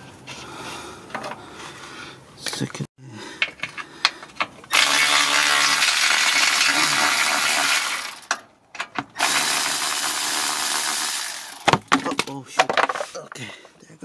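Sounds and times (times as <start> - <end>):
cordless ratchet running: 4.7 - 8.4, 9.2 - 11.7.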